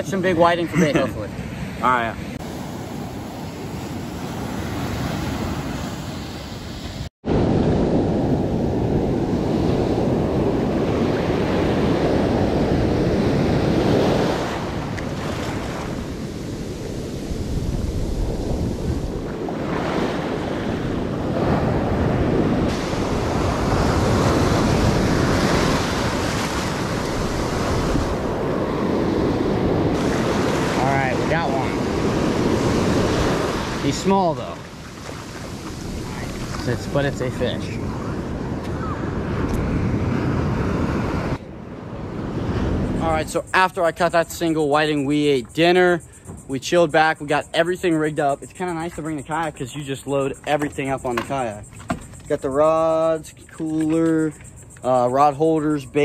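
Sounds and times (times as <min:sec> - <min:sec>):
ocean surf breaking: 0:00.0 - 0:45.2
wind buffeting microphone: 0:07.2 - 0:43.6.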